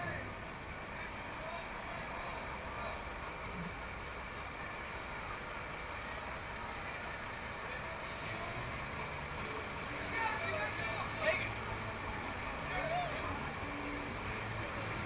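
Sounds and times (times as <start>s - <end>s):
truck diesel engine running: 0.0s - 15.0s
air brakes hissing: 7.8s - 8.7s.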